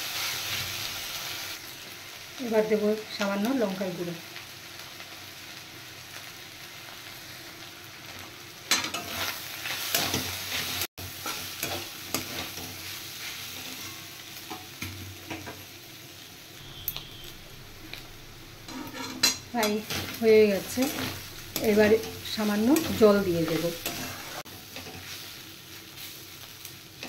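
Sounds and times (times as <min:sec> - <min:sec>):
food sizzling in oil: 0:00.0 - 0:27.0
spatula scraping metal pan: 0:18.6 - 0:25.2.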